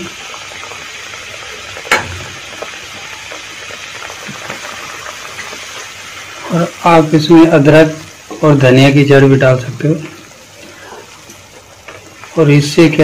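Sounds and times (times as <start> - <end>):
pan of water bubbling: 0.0 - 6.9
sharp knock: 1.9 - 2.3.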